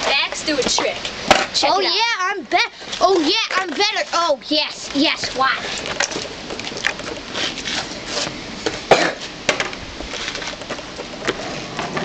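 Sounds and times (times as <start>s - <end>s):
skateboard wheels rolling and scraping: 2.8s - 12.0s.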